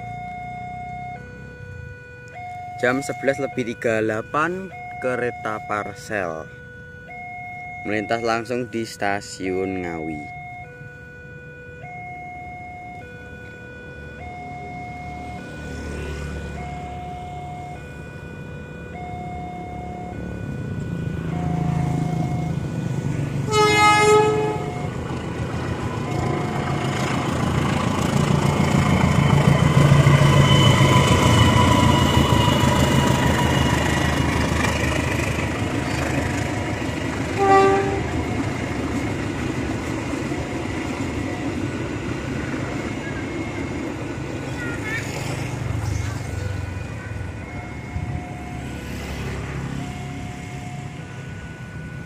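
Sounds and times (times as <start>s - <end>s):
diesel locomotive rumbling past: 11.8s - 52.0s
train horn blast: 23.4s - 24.9s, 37.3s - 38.4s.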